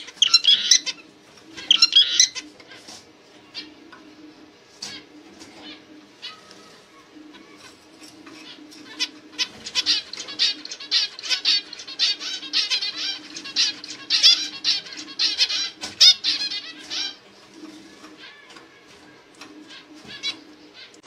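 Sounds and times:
finch chirping: 0.0 - 2.8, 7.4 - 18.4.

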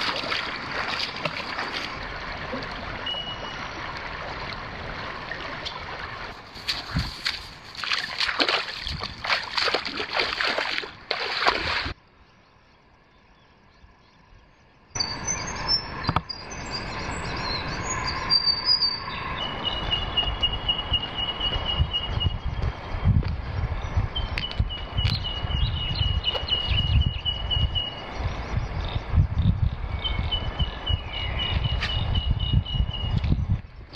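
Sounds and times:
birds chirping: 12.2 - 23.0, 23.7 - 33.9.

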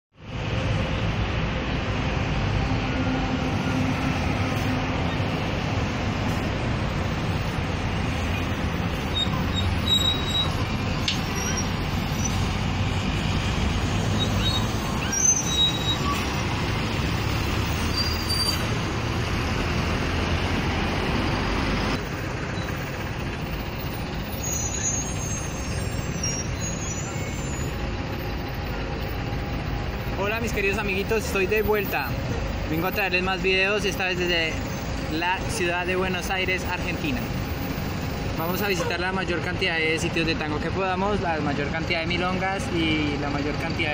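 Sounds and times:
rumble of buses and cars: 0.1 - 43.9
short high squeals: 9.1 - 12.4, 14.1 - 16.4, 17.8 - 18.7, 24.2 - 27.8.

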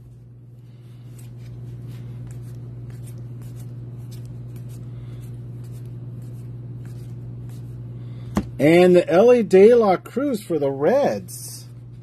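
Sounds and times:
trading cards swishing and scraping: 0.0 - 8.6
steady low hum: 0.0 - 12.0.

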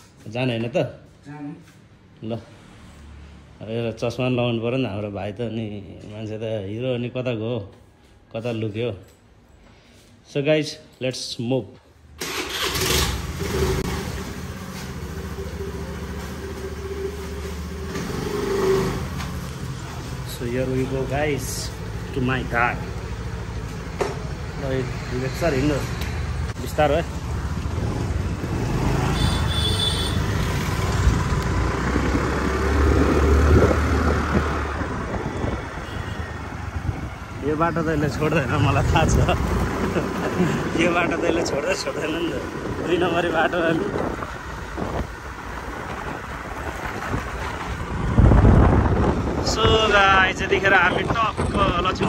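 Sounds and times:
road and wind noise: 0.0 - 7.6, 12.2 - 52.0
motorcycle engine riding off: 12.2 - 24.5, 25.6 - 35.2.

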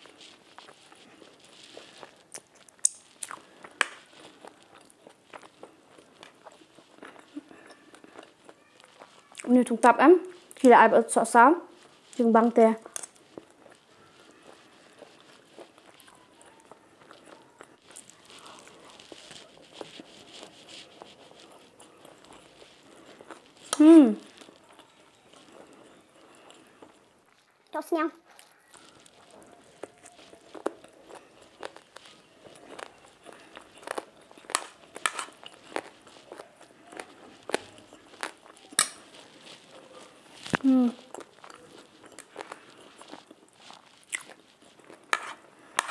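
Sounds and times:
chewing sounds: 0.0 - 10.7, 11.7 - 45.9
metal spoon scraping a plate: 34.4 - 35.7, 45.1 - 45.9
fork clicking on plate: 38.8 - 39.0.

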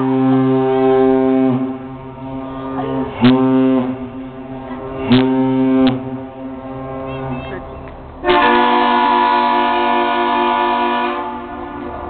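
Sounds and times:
deep horn blasts: 0.0 - 12.0.

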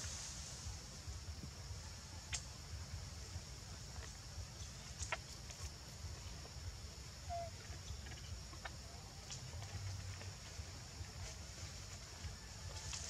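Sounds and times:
high hiss: 0.0 - 7.2.

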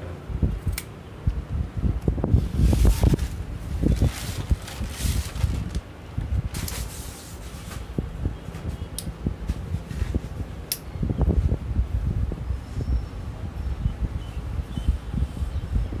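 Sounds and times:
steady low rumble: 0.0 - 16.0
tripod rustling: 2.2 - 10.6.

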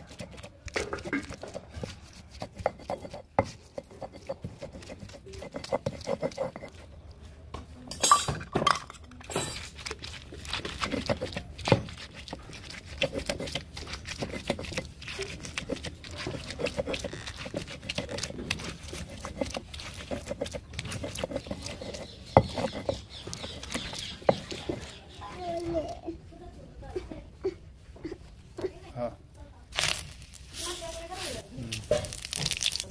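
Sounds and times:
stone grinding gritty scrapes: 0.0 - 7.1, 8.8 - 26.0
glass bowl clinking on stone: 7.9 - 9.7.

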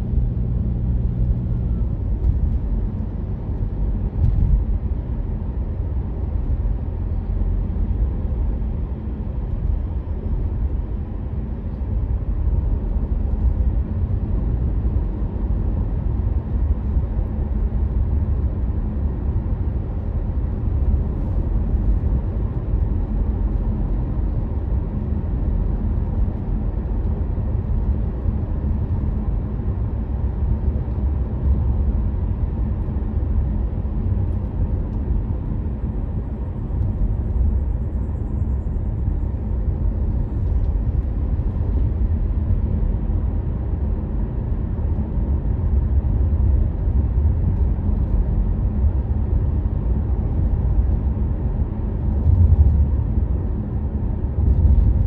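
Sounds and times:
car driving on road: 0.0 - 55.0.

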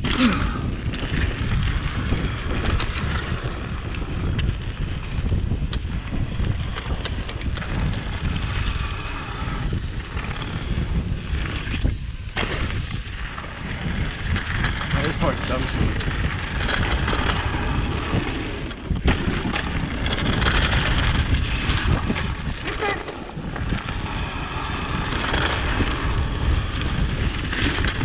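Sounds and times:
bike tyres rumbling on dirt: 0.0 - 28.0
wind buffeting microphone: 0.0 - 28.0.

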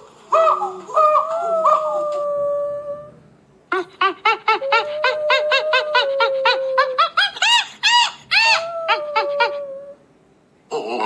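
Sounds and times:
monkey whining call: 0.3 - 10.0
rapid short monkey calls: 3.7 - 9.6.

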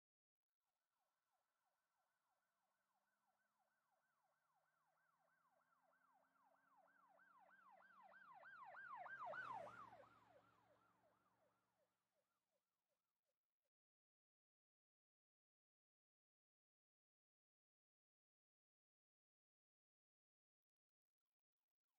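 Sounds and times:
emergency vehicle siren: 4.8 - 11.4.

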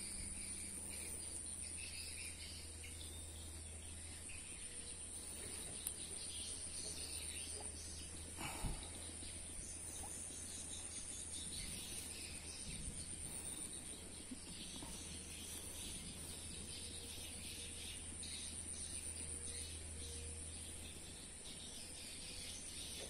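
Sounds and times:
faint chirps: 0.0 - 23.0
insects droning: 0.0 - 23.0.

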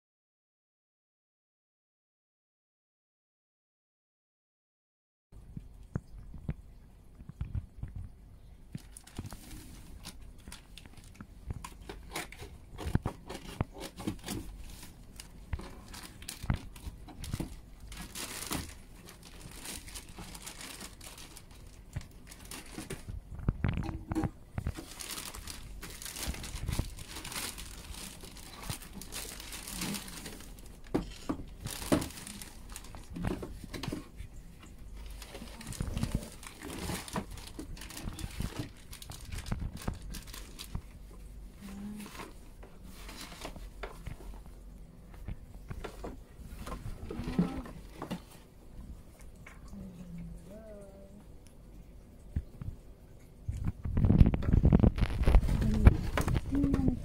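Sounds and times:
packaging crinkling and tearing: 8.8 - 34.1, 35.0 - 44.5, 54.0 - 56.8.

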